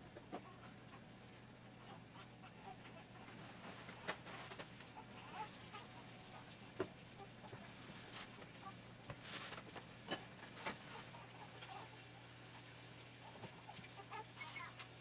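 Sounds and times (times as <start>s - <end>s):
steady low hum: 0.0s - 15.0s
small squeaks: 14.0s - 14.9s.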